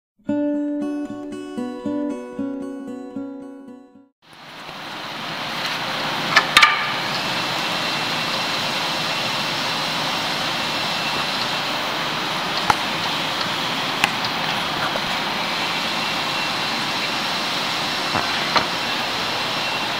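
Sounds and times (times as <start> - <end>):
sharp knocks: 6.4 - 7.1.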